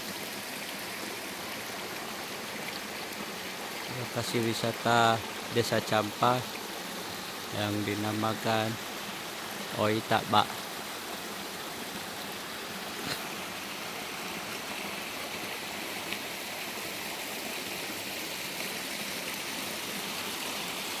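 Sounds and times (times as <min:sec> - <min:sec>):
stream rushing over rocks: 0:00.0 - 0:21.0.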